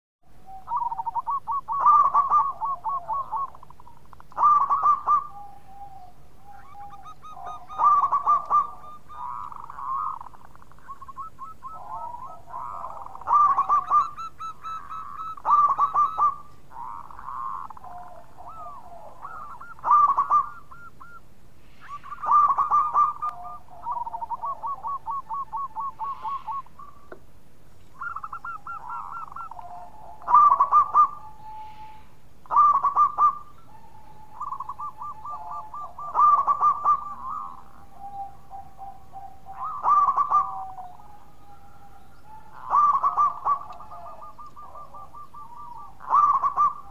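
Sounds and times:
doves cooing: 0:00.3 - 0:46.9
lower-pitched bird cooing: 0:00.3 - 0:46.9.

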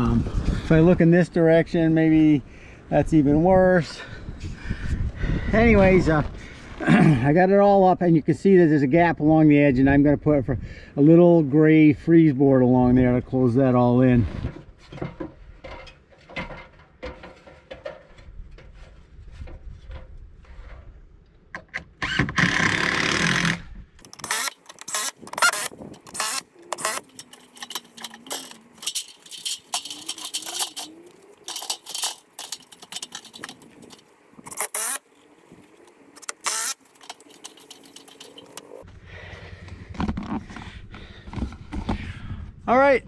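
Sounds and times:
metal ladder clanking and rattling: 0:14.4 - 0:20.7, 0:24.1 - 0:34.6, 0:36.3 - 0:38.8.

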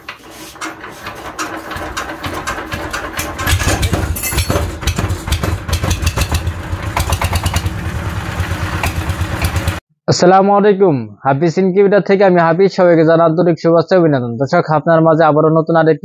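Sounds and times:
diesel engine running: 0:00.8 - 0:09.8.

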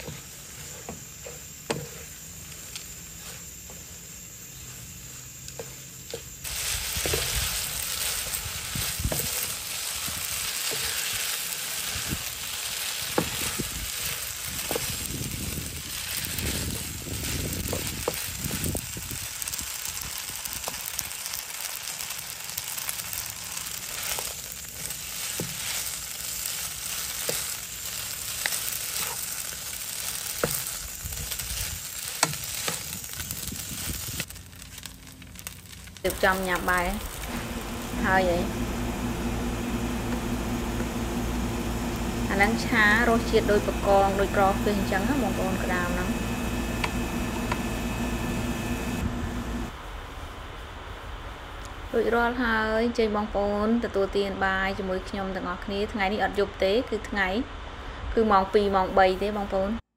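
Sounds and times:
wooden spatula scraping a pan: 0:00.0 - 0:04.0, 0:23.9 - 0:34.0
noodles sizzling in a pan: 0:00.0 - 0:50.3.

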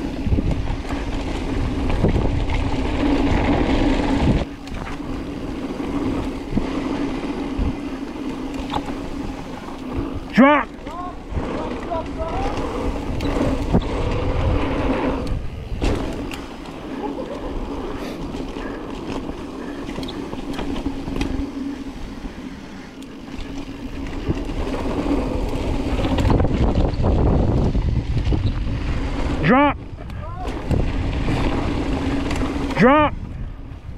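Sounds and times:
bike knocks and rattles: 0:00.0 - 0:21.9
tyres rumbling over dirt: 0:00.0 - 0:33.9
wind buffeting microphone: 0:00.0 - 0:33.9.

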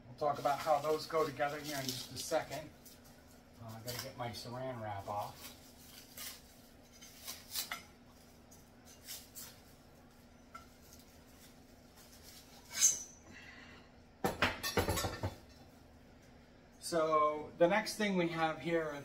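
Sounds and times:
faint steady hum: 0:00.0 - 0:19.0
plastic wrap crinkling and tearing: 0:00.3 - 0:10.0.

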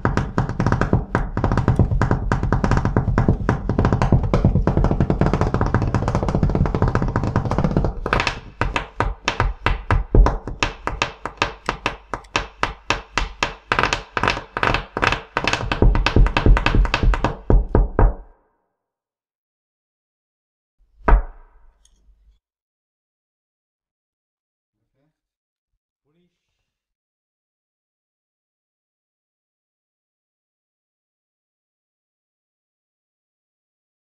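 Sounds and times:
fingers drumming on wooden table: 0:00.0 - 0:18.3.

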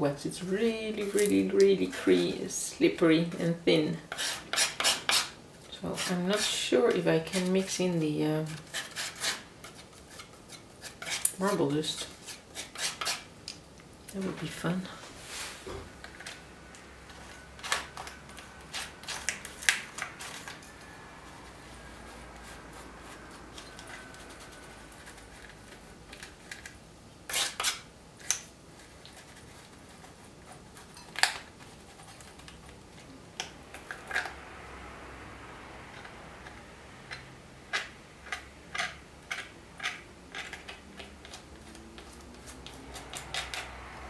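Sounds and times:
palette knife clicks and scrapes: 0:35.9 - 0:43.8.

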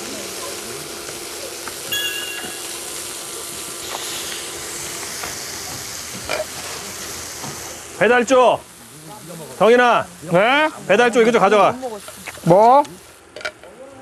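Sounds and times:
onions sizzling in a frying pan: 0:00.0 - 0:14.0
high whistle-like tone: 0:01.9 - 0:02.7.

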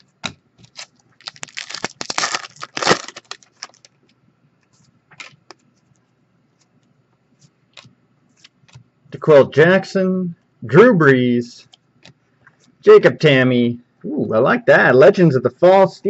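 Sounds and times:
foil wrapper crinkling: 0:00.0 - 0:04.1, 0:05.2 - 0:05.6.

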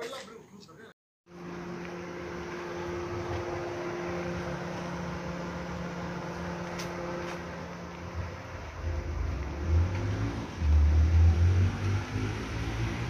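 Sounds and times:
car engine running: 0:01.3 - 0:13.0.

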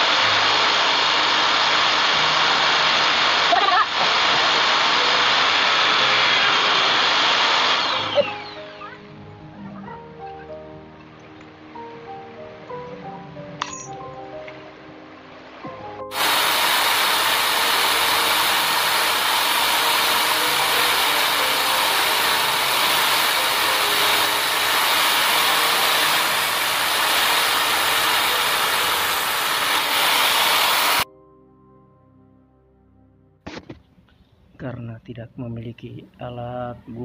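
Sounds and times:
drill cutting into metal: 0:00.0 - 0:08.7, 0:16.1 - 0:31.0
background music: 0:00.0 - 0:37.0.

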